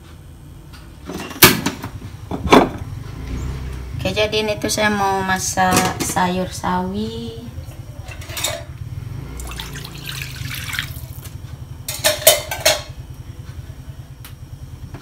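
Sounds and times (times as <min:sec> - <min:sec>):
steady low hum: 0:00.0 - 0:15.0
cookware clattering: 0:08.1 - 0:08.7, 0:11.9 - 0:12.9
water running at sink: 0:09.4 - 0:11.3.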